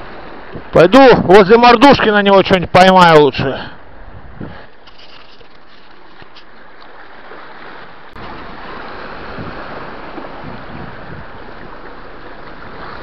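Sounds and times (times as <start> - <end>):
surf washing over rocks: 0.0 - 13.0
wind on microphone: 3.8 - 13.0.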